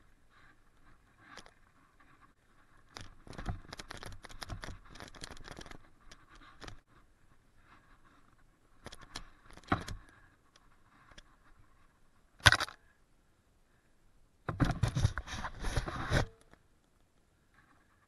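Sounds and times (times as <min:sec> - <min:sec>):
mountain bike rattling: 0:00.0 - 0:12.8.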